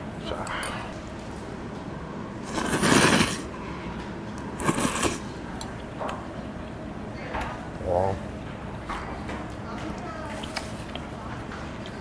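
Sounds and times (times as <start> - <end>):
person slurping noodles: 2.4 - 3.5, 4.6 - 5.3.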